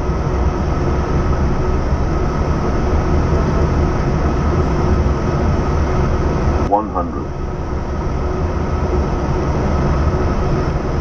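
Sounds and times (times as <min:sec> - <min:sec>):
airflow and engine rush: 0:00.0 - 0:11.0
faint steady hum: 0:06.0 - 0:09.3.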